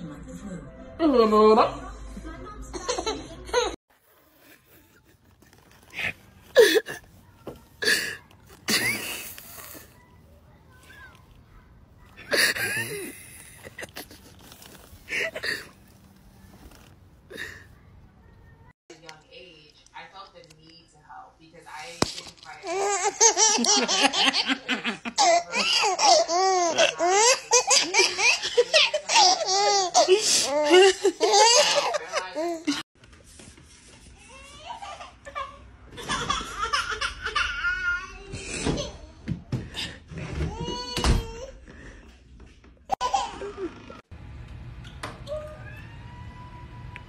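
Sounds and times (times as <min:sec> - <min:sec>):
woman laughing: 0:12.2 - 0:14.4, 0:30.0 - 0:32.8
baby laughing and squealing: 0:25.2 - 0:32.6.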